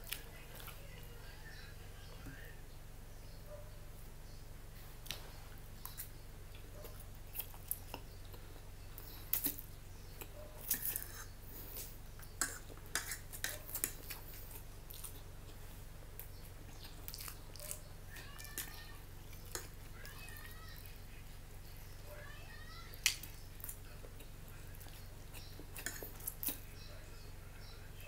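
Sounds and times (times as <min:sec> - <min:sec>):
steady low hum: 0:00.0 - 0:28.0
chewing and mouth sounds: 0:05.8 - 0:22.1, 0:22.9 - 0:26.7.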